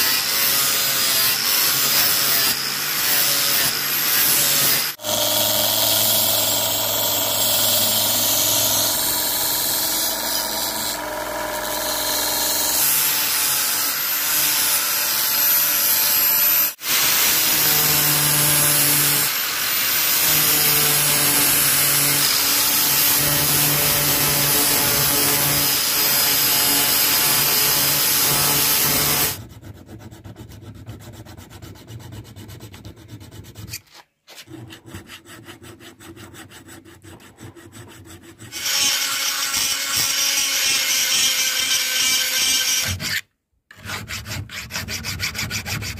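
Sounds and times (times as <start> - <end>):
belt sander running: 5.0 - 12.8.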